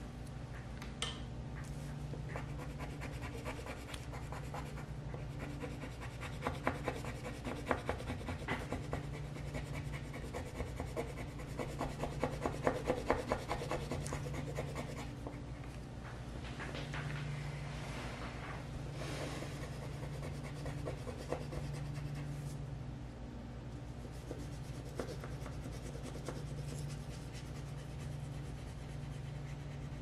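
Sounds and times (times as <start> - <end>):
low steady hum: 0.0 - 30.0
pencil scribbling on paper: 2.3 - 15.2, 19.5 - 22.5, 24.0 - 30.0.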